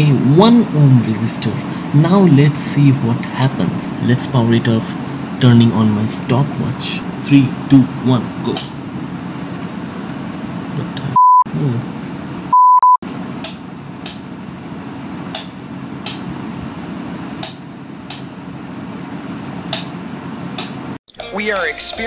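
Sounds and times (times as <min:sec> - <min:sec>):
steady low hum: 0:00.0 - 0:21.0
censor beep tone: 0:11.2 - 0:11.5, 0:12.5 - 0:13.0.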